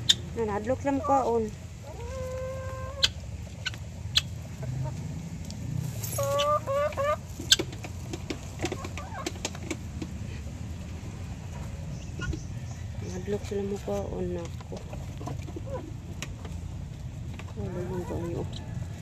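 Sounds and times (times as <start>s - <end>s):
poultry calling: 0.0s - 5.0s, 6.1s - 7.7s, 17.6s - 19.0s.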